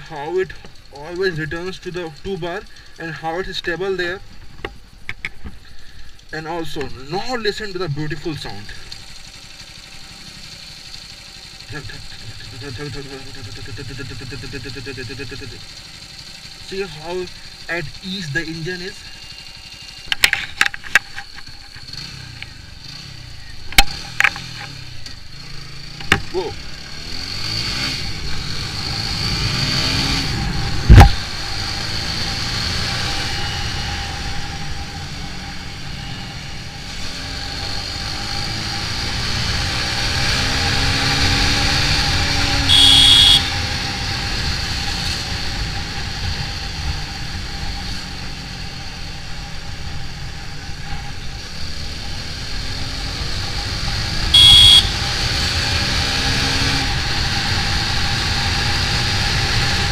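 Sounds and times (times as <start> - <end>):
motorcycle engine accelerating: 0.0 - 59.9
sharp thump: 30.8 - 31.2
horn beeping: 42.3 - 43.8, 54.2 - 55.1.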